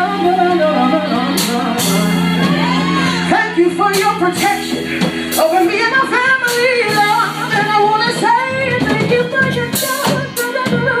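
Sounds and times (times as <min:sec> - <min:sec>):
live band playing: 0:00.0 - 0:11.0
woman singing into microphone: 0:00.0 - 0:11.0.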